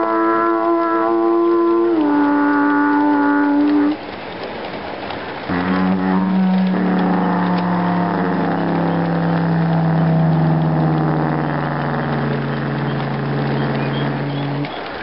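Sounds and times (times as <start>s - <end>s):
locomotive air horn from speaker: 0.0s - 4.0s, 5.5s - 11.2s.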